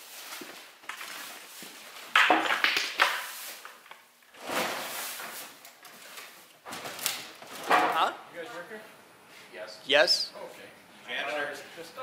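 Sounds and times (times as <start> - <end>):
plastic sheeting rustling: 0.0 - 2.2, 3.2 - 7.7.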